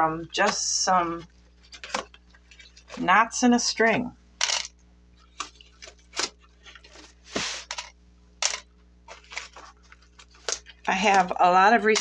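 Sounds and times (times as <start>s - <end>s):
scratchy sound: 7.3s - 7.9s.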